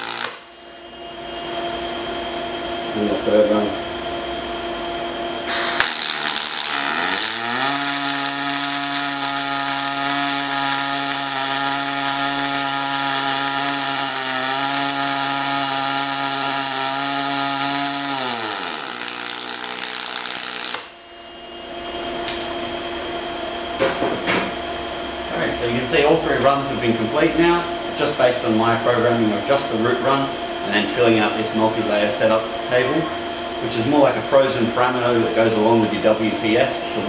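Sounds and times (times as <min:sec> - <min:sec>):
welding arc hiss: 0:00.0 - 0:00.8, 0:05.4 - 0:21.0
pitched machine hum: 0:00.0 - 0:37.0.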